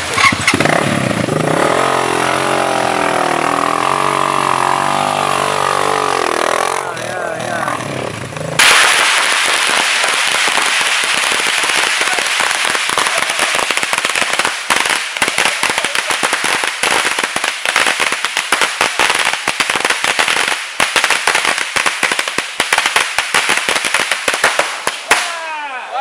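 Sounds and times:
motorcycle engine: 0.0s - 8.6s
firecrackers crackling: 0.0s - 25.9s.

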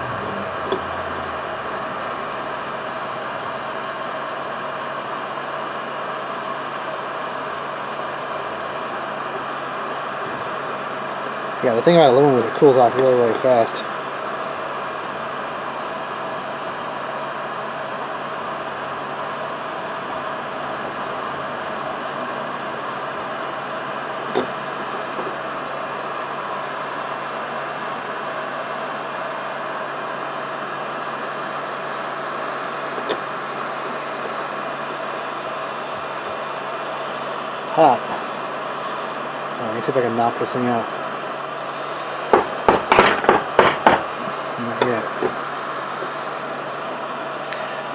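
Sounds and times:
heat gun air rush: 0.0s - 5.0s
faint motor hum: 0.0s - 47.9s
heat gun fan blowing: 0.0s - 47.9s.

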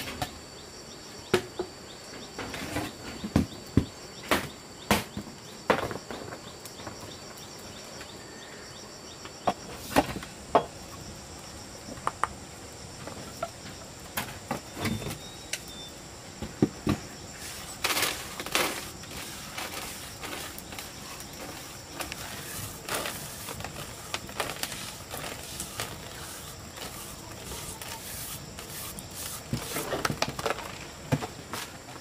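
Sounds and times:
insects droning high-pitched: 0.0s - 32.0s.

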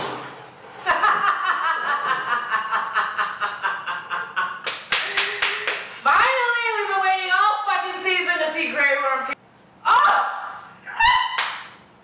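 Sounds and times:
woman laughing: 0.9s - 5.7s.

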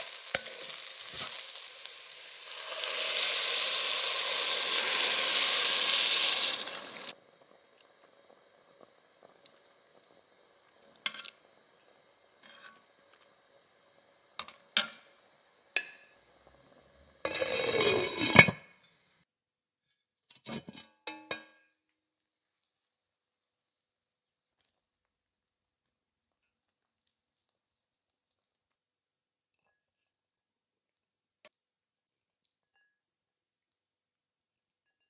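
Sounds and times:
cookware clattering: 17.3s - 18.8s, 20.5s - 21.6s.

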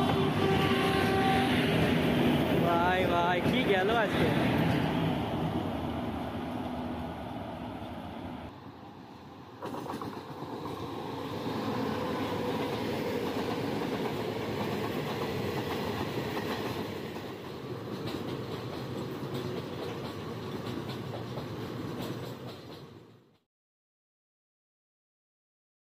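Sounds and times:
train rumble: 0.0s - 23.4s
wheels clacking over rail joints: 9.6s - 11.0s, 11.6s - 23.4s.

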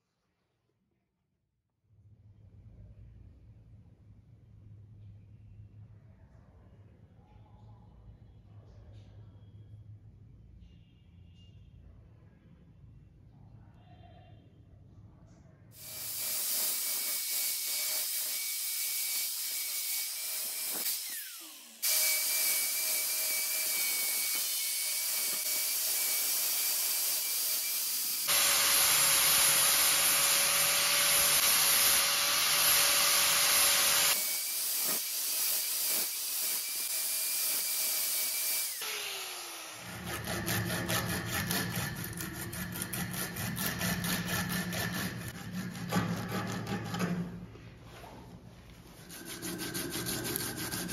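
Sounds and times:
angle grinder grinding steel: 15.8s - 47.1s, 49.0s - 50.9s.

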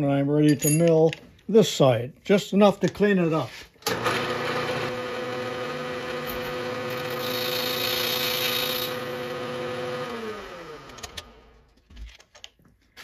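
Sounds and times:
milling machine spindle whine: 4.0s - 11.2s
hissing metal cutting: 6.3s - 9.0s.

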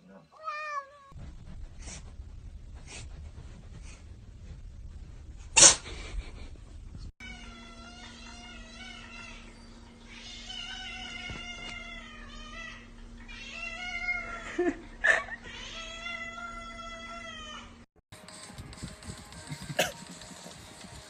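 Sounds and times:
cat meowing: 0.4s - 1.2s.

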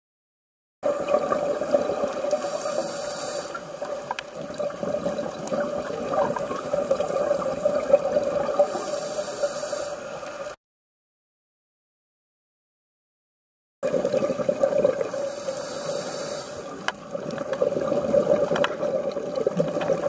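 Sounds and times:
underwater hum: 0.8s - 10.6s, 13.8s - 20.0s
high hiss: 2.4s - 3.7s, 8.7s - 10.2s, 15.2s - 16.8s
clicks and crackle: 3.8s - 7.0s, 16.8s - 20.0s.

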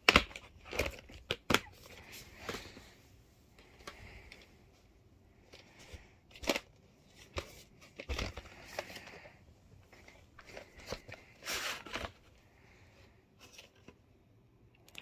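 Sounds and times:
cassette handling clicks and knocks: 0.0s - 2.6s.

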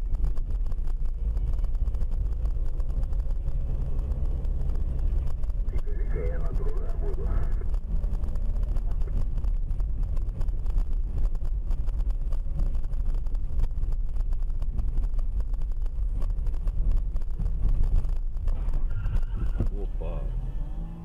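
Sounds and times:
car cabin rumble: 0.0s - 21.0s.

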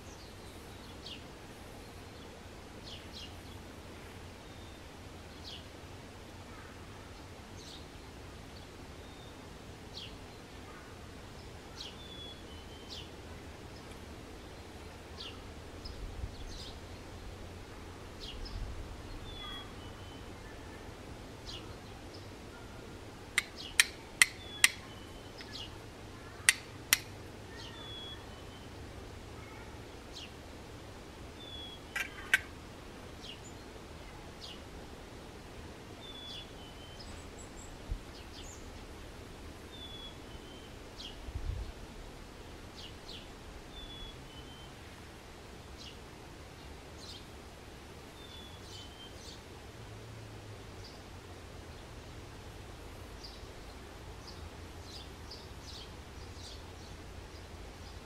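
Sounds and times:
small birds chirping: 18.2s - 30.4s, 31.3s - 34.7s, 48.1s - 49.5s, 53.1s - 58.0s.

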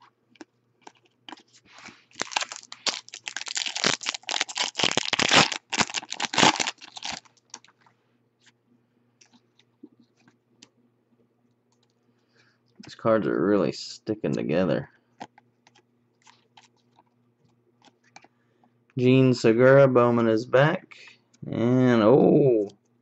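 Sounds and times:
foil wrapper crackling: 0.8s - 7.7s.

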